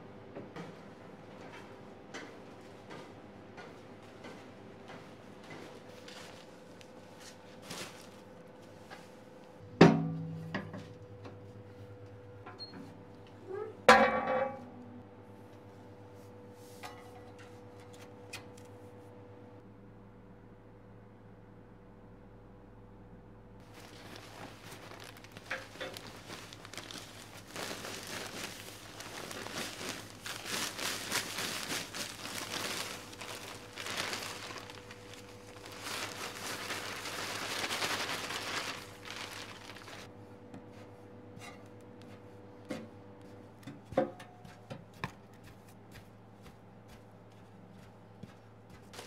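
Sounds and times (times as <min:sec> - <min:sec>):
plastic bag crinkling: 0:23.6 - 0:40.1.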